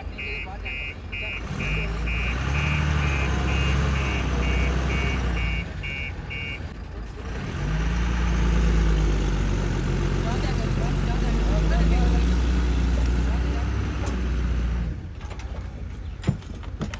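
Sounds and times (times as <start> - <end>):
truck reversing beeper: 0.0 - 8.4
diesel engine running: 0.0 - 16.9.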